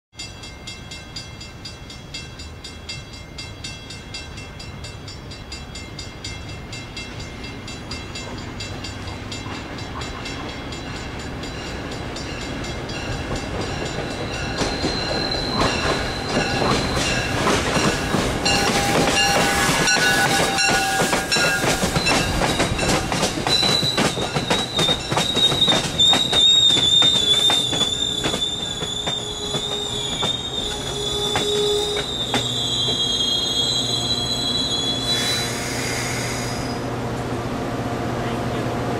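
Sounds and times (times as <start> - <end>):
train rolling: 0.2 - 38.9
wheels clicking over rail joints: 7.5 - 33.1
train brakes squealing: 13.0 - 36.9.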